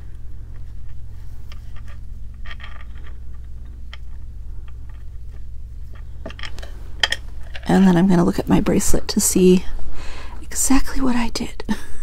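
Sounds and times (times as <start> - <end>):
fingers rustling and scraping cord: 0.0 - 8.6
steady low hum: 0.0 - 12.0.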